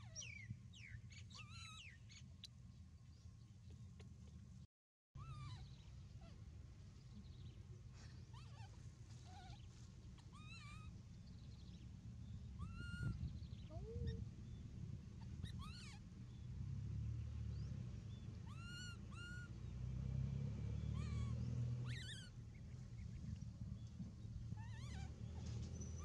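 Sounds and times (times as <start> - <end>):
baby monkey coo calls: 1.3 - 1.9, 5.2 - 6.4, 8.3 - 10.9, 12.5 - 14.2, 15.2 - 16.0, 18.4 - 19.5, 20.8 - 22.4, 24.5 - 26.0.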